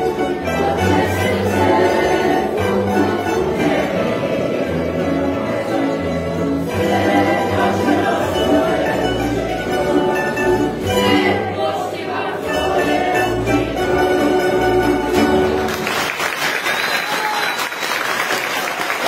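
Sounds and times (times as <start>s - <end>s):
plucked string ensemble folk tune: 0.0s - 16.3s
audience applause: 15.6s - 19.0s.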